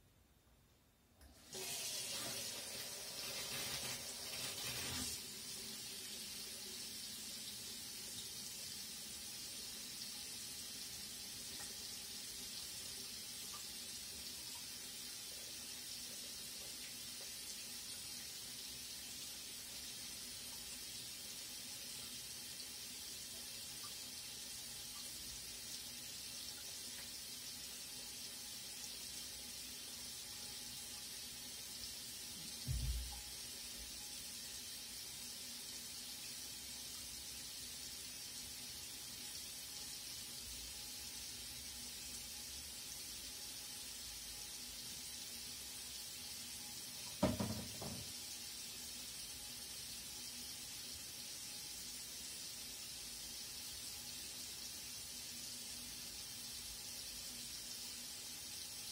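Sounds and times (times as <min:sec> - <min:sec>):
tap water splashing into sink: 0:32.5 - 0:33.2, 0:47.0 - 0:48.2.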